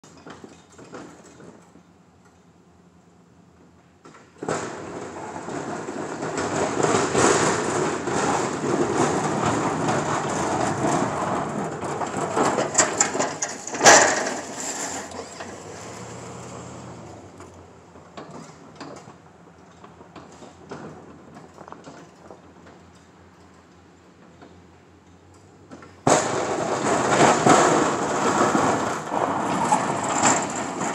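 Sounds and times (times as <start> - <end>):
loud clunk: 4.1 - 16.2, 25.7 - 30.9
plow blade scraping snow: 4.5 - 17.9, 26.0 - 30.9.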